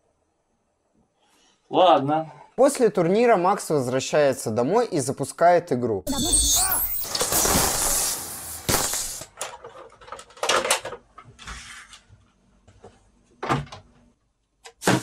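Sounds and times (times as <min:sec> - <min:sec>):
loud burst of noise: 0:06.1 - 0:09.3.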